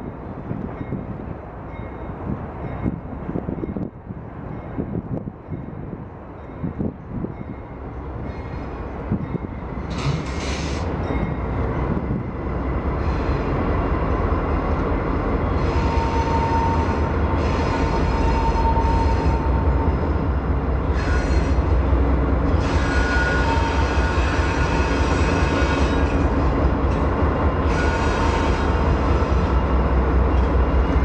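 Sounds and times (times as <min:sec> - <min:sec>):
train wheels squealing: 0:07.4 - 0:11.5, 0:20.9 - 0:21.7, 0:22.6 - 0:26.4.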